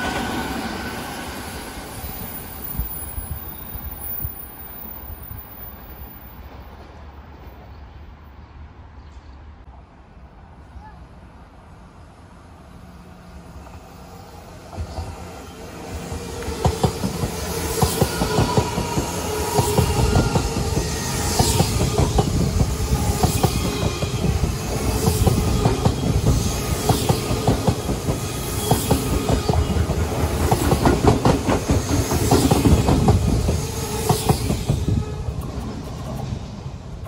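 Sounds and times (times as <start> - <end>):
electric train passing: 0.0 - 8.4, 11.3 - 37.0
train wheels clacking over rail joints: 16.4 - 36.4.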